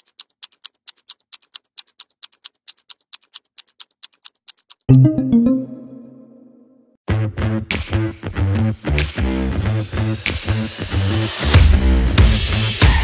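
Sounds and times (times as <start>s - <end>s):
quick clock-like ticking: 0.0s - 5.3s
loud musical chord: 4.9s - 6.6s.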